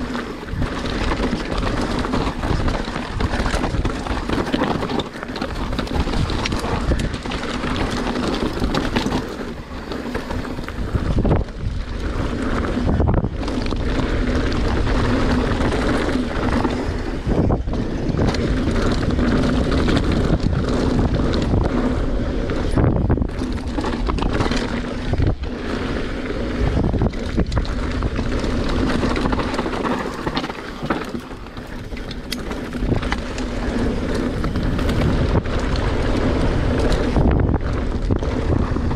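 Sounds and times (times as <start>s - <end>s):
bike knocking and rattling: 0.0s - 38.9s
tyres on dirt and rock: 0.0s - 38.9s
wind buffeting microphone: 0.0s - 38.9s.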